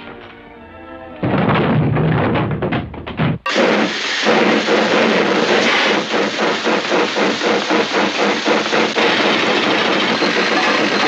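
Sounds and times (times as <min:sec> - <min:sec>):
steam locomotive chuffing: 0:03.5 - 0:11.0.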